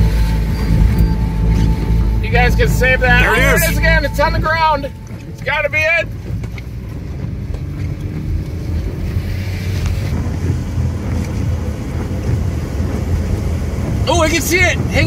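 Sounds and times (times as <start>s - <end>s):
vehicle rumble on wet road: 3.9s - 15.0s.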